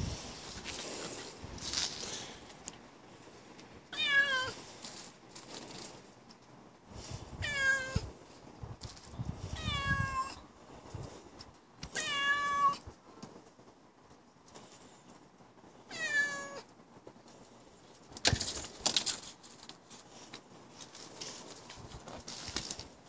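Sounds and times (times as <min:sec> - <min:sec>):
cat meowing: 0:03.9 - 0:04.6, 0:07.4 - 0:08.1, 0:09.6 - 0:10.4, 0:11.9 - 0:12.8, 0:15.9 - 0:16.7.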